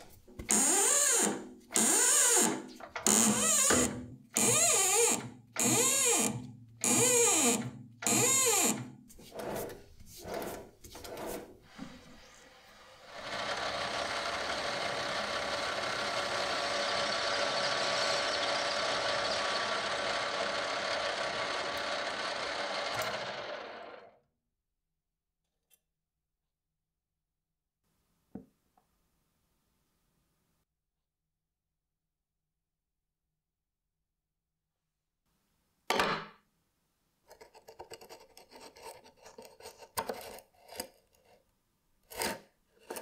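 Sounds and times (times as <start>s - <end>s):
drill boring into brass: 0.5s - 8.9s, 13.0s - 24.0s
lathe cutting spinning metal: 13.0s - 24.0s.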